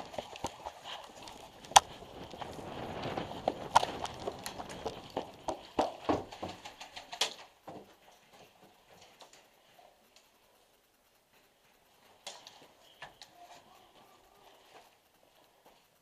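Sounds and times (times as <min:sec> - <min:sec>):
quick footsteps on dirt: 0:00.0 - 0:09.5.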